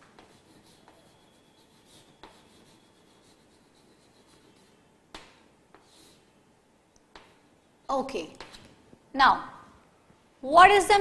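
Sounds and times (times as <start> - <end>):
chalk tapping on blackboard: 0.0 - 6.1
chalk scratching on blackboard: 0.0 - 6.3.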